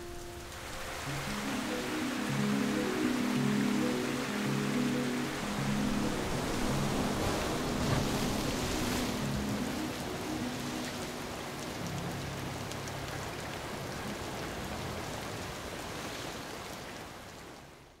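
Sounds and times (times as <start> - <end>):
water flowing hiss: 0.0 - 13.6.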